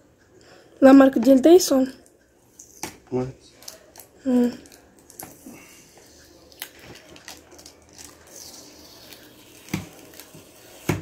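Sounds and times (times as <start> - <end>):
faint crinkling: 3.4 - 10.8
sticky tape peeling off plastic: 6.4 - 10.9.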